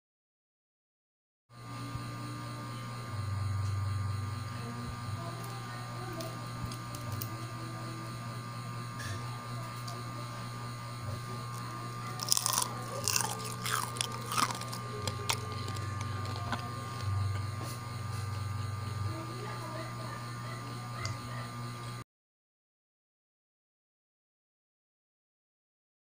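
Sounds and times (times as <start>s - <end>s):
low hum: 1.7s - 22.0s
crunching fried food: 11.5s - 17.8s.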